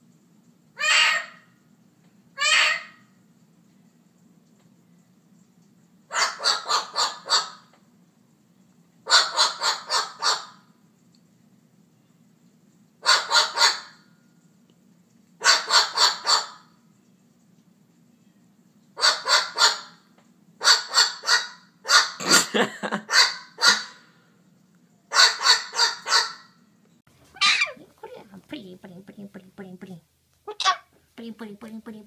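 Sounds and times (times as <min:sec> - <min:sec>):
cockatoo squawking: 0:00.8 - 0:01.5, 0:02.4 - 0:03.0, 0:06.1 - 0:07.7, 0:09.1 - 0:10.6, 0:13.0 - 0:14.0, 0:15.4 - 0:16.7, 0:19.0 - 0:20.0, 0:20.6 - 0:22.2, 0:23.1 - 0:24.0, 0:25.1 - 0:26.5, 0:27.3 - 0:27.8, 0:30.5 - 0:30.9.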